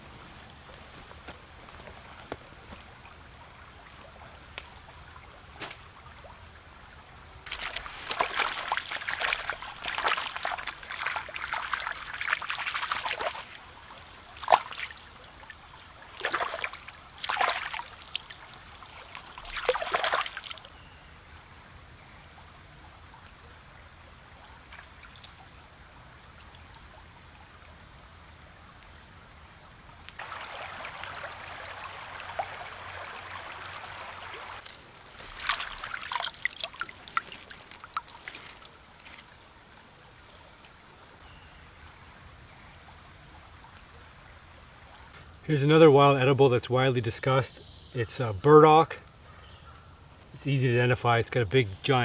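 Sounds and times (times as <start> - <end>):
stream babbling: 0.0 - 52.0
leeks splashing in water: 7.5 - 15.1, 16.0 - 20.7, 33.4 - 39.4.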